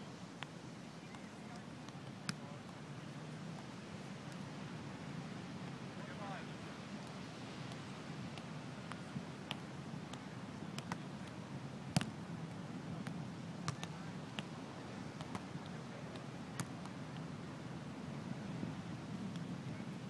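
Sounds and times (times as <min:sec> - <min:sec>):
wind and surf: 0:00.0 - 0:20.0
hands slapping volleyball: 0:01.1 - 0:02.5, 0:07.7 - 0:12.2, 0:13.0 - 0:14.5, 0:15.2 - 0:17.2.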